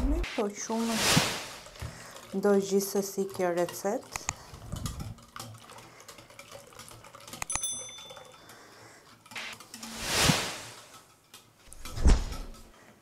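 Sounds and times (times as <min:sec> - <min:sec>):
wire whisk stirring batter: 0:00.4 - 0:12.7
bell-like chime: 0:07.5 - 0:08.4.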